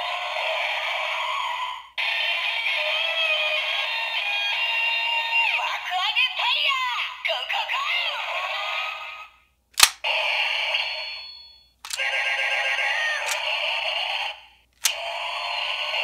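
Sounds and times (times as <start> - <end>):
tinny toy sound effects and music: 0.0 - 9.4, 10.1 - 16.0
plastic toy mechanism click: 9.8 - 10.0, 13.2 - 13.4, 14.8 - 15.0.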